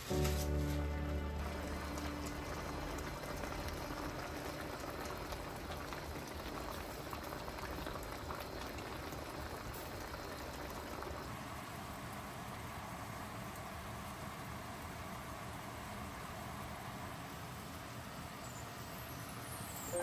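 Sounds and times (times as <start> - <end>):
stew bubbling and crackling: 0.7 - 16.3.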